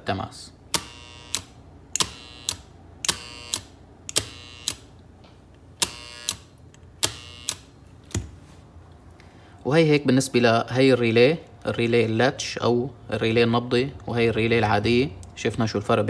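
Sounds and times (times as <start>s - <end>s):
faint relay coil buzz: 0.6s - 8.3s.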